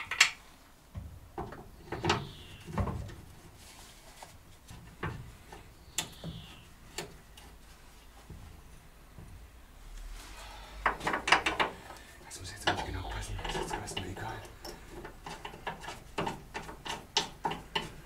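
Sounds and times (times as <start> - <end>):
hand tools knocking and clicking: 10.9 - 11.8, 12.6 - 18.0.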